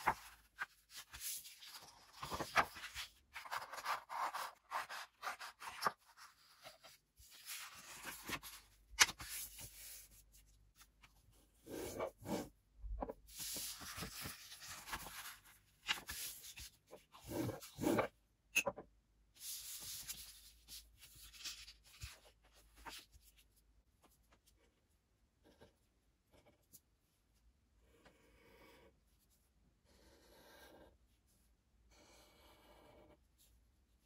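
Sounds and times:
paper rustling and sliding: 0:00.0 - 0:10.2, 0:13.2 - 0:18.1.

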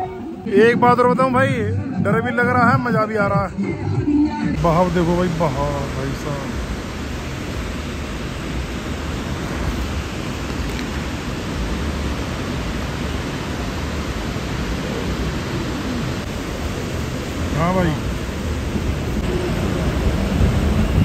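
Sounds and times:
river water rushing: 0:04.6 - 0:21.0.

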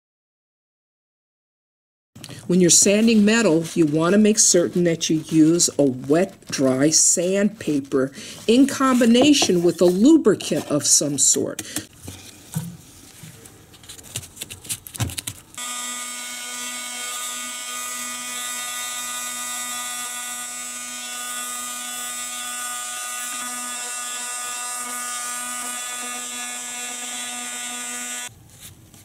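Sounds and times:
electric detail sander running: 0:15.6 - 0:28.3.

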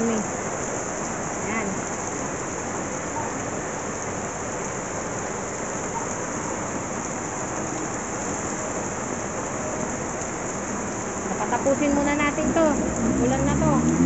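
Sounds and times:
heavy rain on pavement: 0:00.0 - 0:14.0.

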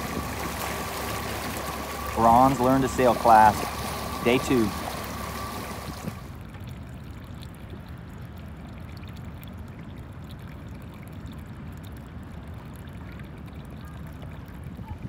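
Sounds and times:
water lapping and trickling: 0:00.0 - 0:15.0
wind rumble on microphone: 0:14.3 - 0:15.0.

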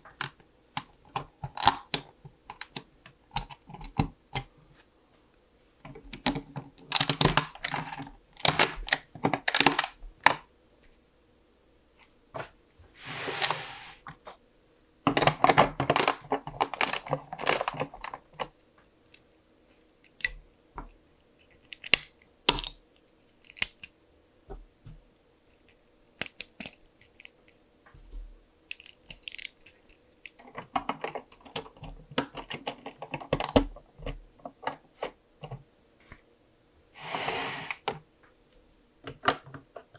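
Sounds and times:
plastic bricks clicking: 0:15.1 - 0:18.5, 0:21.6 - 0:22.8, 0:28.7 - 0:35.6.

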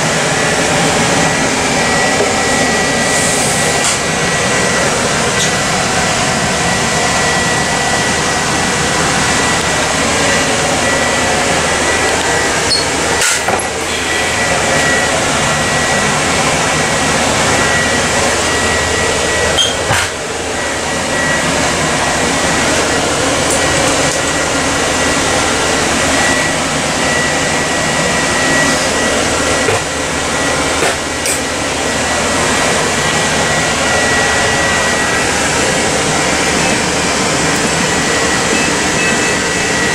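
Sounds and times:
fan-like rushing noise: 0:00.0 - 0:39.9
high-pitched whine: 0:00.0 - 0:39.9.

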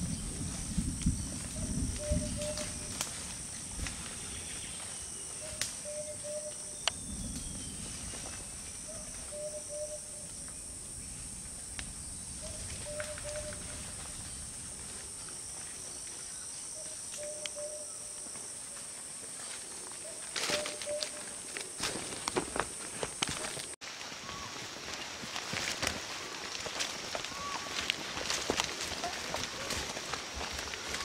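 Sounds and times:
insects droning: 0:00.0 - 0:31.0
footsteps in dry leaves: 0:18.8 - 0:31.0.

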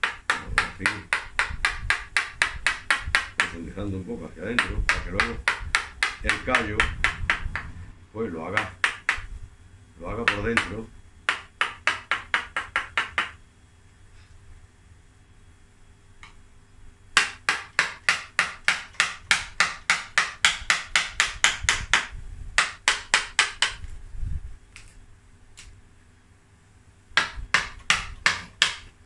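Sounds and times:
mallet tapping gouge into wood: 0:00.0 - 0:03.6, 0:04.6 - 0:07.7, 0:08.5 - 0:09.3, 0:10.2 - 0:13.4, 0:17.2 - 0:23.8, 0:27.2 - 0:28.8.

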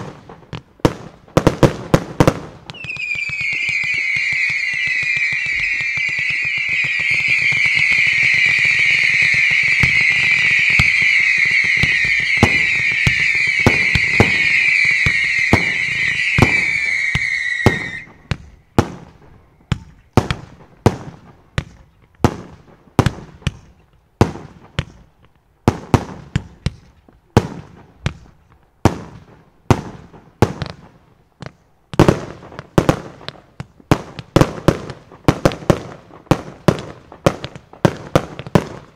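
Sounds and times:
sharp firework bangs: 0:00.0 - 0:25.0
fireworks crackling: 0:00.0 - 0:38.9
whistling fireworks: 0:00.0 - 0:38.9.

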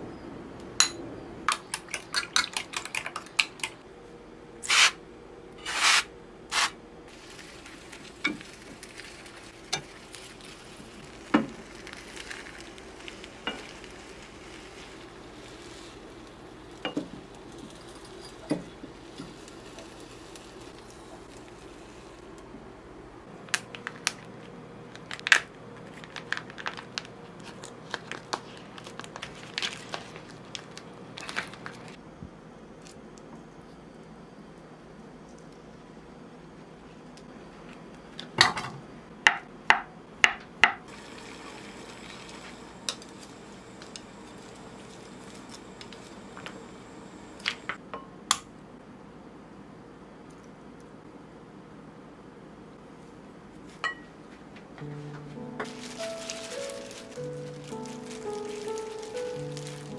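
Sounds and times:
soft sizzle: 0:05.6 - 0:37.0, 0:40.9 - 0:47.8, 0:52.8 - 0:59.9
plastic film crackling: 0:06.6 - 0:18.2, 0:23.5 - 0:32.0, 0:55.6 - 0:59.9.

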